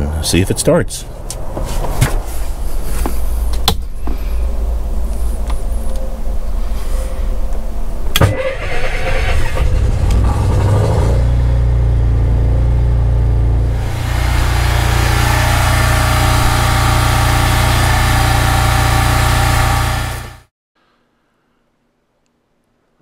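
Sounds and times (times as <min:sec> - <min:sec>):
generator engine running: 0:13.6 - 0:20.5.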